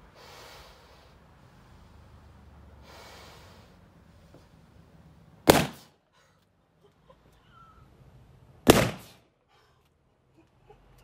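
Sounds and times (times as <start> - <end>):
balloon bursting with loud pops: 5.5 - 5.9, 8.6 - 9.2.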